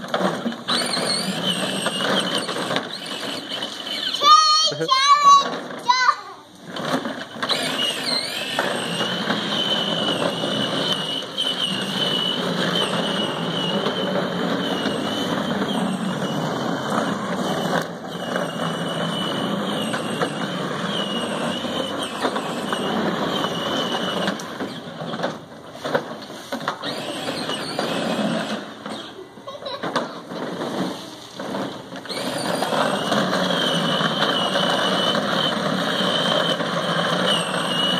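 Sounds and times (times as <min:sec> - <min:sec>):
plastic wheels rumbling: 0:00.0 - 0:37.9
electric motor whine: 0:07.4 - 0:24.8, 0:26.8 - 0:29.1, 0:31.5 - 0:37.9.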